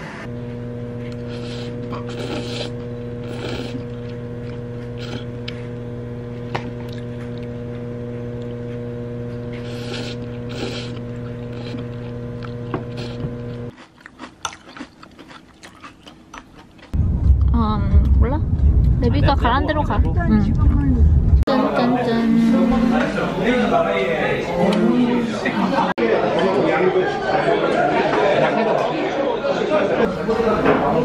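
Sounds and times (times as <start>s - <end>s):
microwave oven humming: 0.1s - 13.8s, 19.1s - 25.9s
noodles slurped and chewed: 1.2s - 5.3s, 9.5s - 17.0s.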